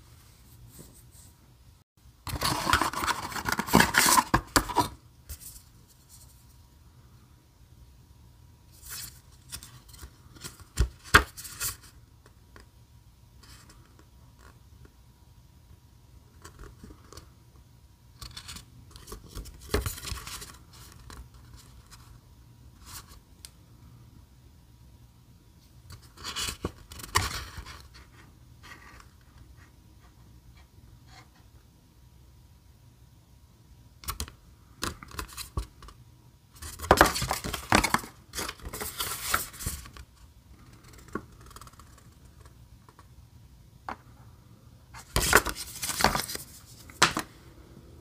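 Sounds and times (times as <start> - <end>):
paper rustling: 36.6 - 40.0, 45.0 - 47.2.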